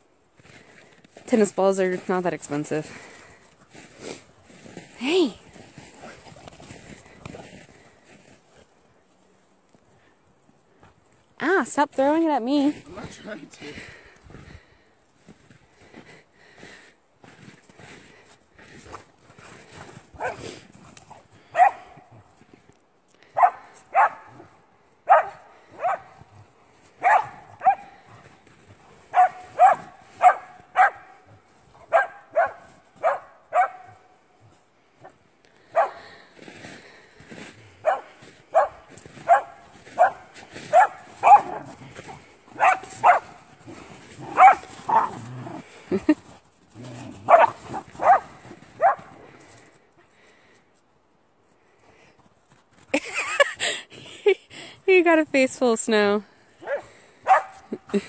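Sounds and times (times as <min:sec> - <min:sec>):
dog barking: 0:20.2 - 0:20.4, 0:21.6 - 0:22.0, 0:23.4 - 0:24.5, 0:25.1 - 0:26.2, 0:27.0 - 0:27.9, 0:29.1 - 0:31.2, 0:31.9 - 0:34.0, 0:35.7 - 0:36.0, 0:37.8 - 0:41.7, 0:42.6 - 0:43.4, 0:44.2 - 0:45.2, 0:47.3 - 0:49.1, 0:56.6 - 0:57.6.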